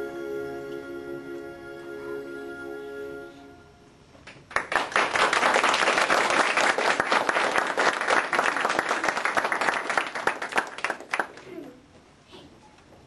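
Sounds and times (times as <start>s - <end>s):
audience applause: 4.5s - 11.6s.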